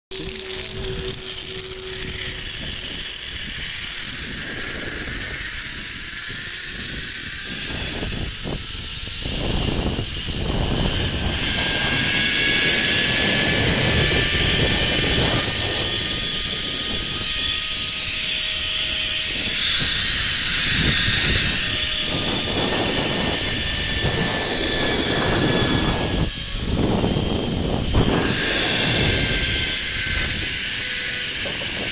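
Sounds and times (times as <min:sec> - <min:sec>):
wind buffeting microphone: 0:00.1 - 0:31.9
zipline pulleys whining: 0:00.1 - 0:31.9.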